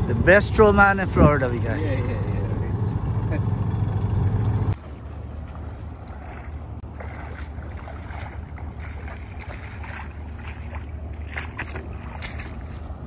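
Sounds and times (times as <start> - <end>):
steady low rumble: 0.0 - 13.0
shallow water splashing: 4.8 - 13.0.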